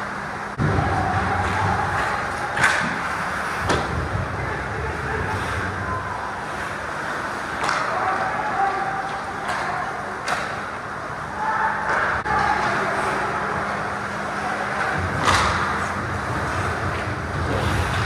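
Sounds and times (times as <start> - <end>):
steady low hum: 0.0 - 18.0
hockey sticks and puck clacking: 0.6 - 4.1, 7.0 - 10.8, 14.7 - 18.0
skates scraping ice: 11.9 - 18.0.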